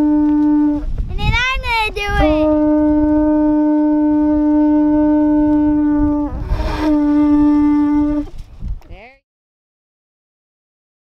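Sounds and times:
conch shell horn blast: 0.0s - 1.0s, 2.3s - 8.4s.

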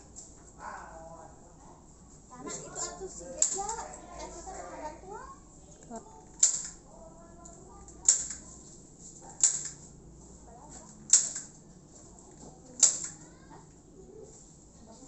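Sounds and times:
staple gun snaps: 11.1s - 11.5s, 12.8s - 13.2s.

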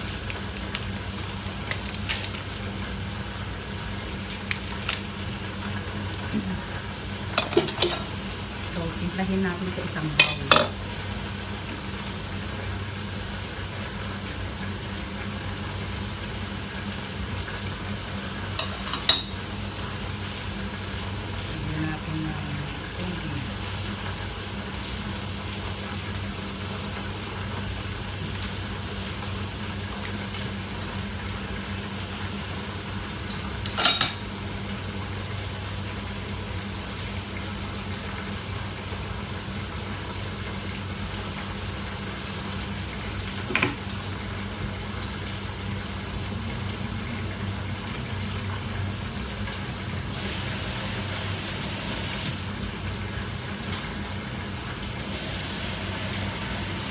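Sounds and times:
food cooking with hum and hiss: 0.0s - 56.9s
utensil clinking on cookware: 7.4s - 8.2s, 10.2s - 10.8s, 18.6s - 19.4s, 33.6s - 34.2s.

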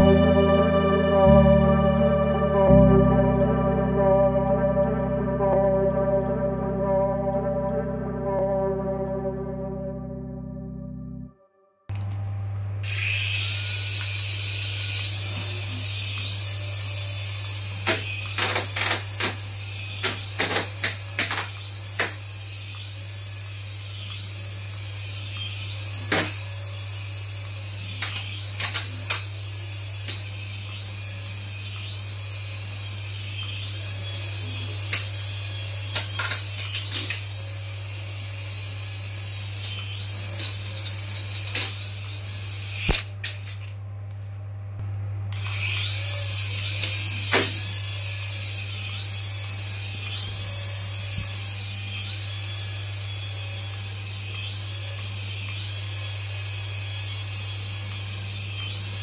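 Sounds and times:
toy helicopter motors whining: 12.8s - 43.7s, 45.3s - 59.0s.

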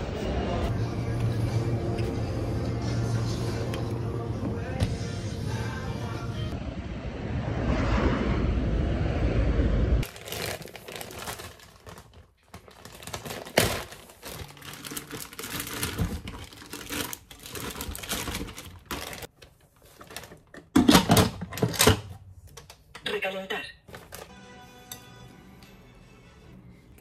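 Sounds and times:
plastic zip bag crinkling: 10.0s - 20.3s.

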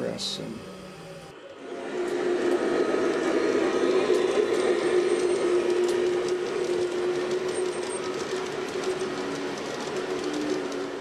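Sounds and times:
electric motor hum: 0.0s - 7.2s
wheels clicking over rails: 1.9s - 11.0s.

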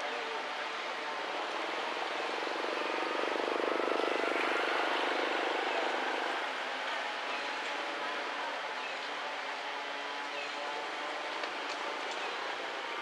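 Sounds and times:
passing engine drone: 1.4s - 6.6s.

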